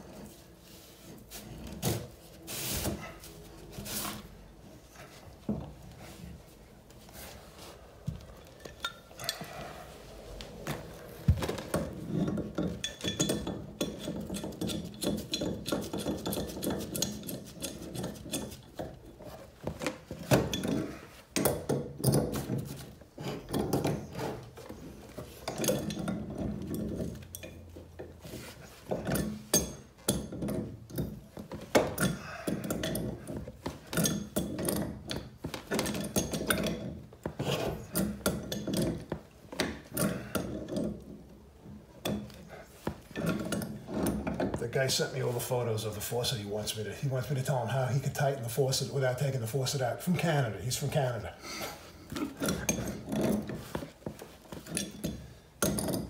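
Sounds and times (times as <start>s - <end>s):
metal clinks and scraping: 8.2s - 19.4s, 51.8s - 56.0s.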